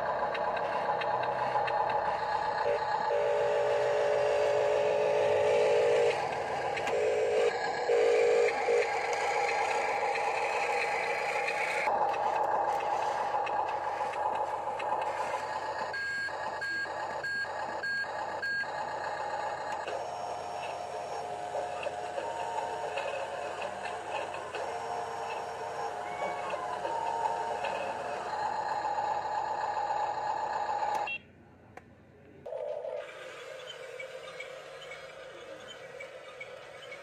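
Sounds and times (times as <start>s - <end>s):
electric motor whine: 2.0s - 16.4s, 18.9s - 31.1s
reversing alarm beeps: 15.8s - 18.7s.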